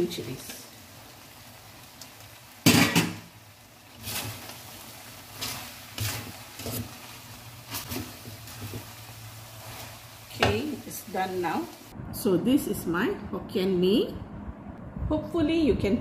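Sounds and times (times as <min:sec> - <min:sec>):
metal spatulas scraping a wok: 0:04.0 - 0:04.5, 0:05.3 - 0:07.1.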